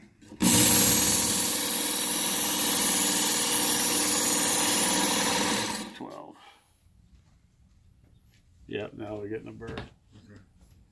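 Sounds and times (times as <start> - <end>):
motor winding down: 0.4 - 6.0.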